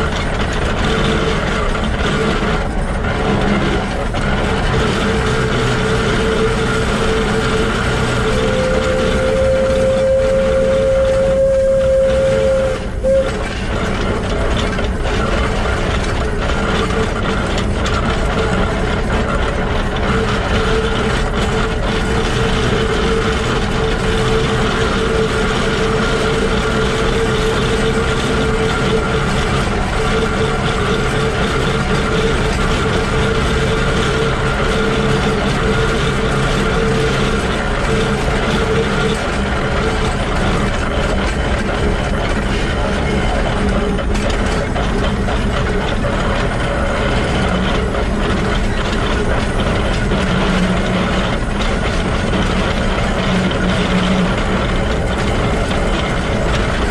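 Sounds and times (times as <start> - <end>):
locomotive gears clattering and rumbling: 0.0 - 56.9
steam whistle: 4.8 - 13.8, 20.1 - 40.2.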